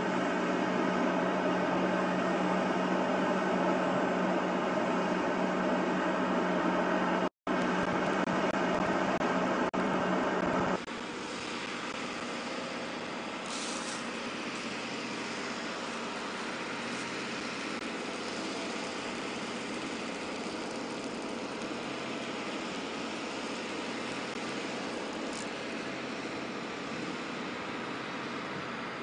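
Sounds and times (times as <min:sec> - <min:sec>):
engine running hum: 0:00.0 - 0:29.0
brief hisses: 0:13.4 - 0:14.2.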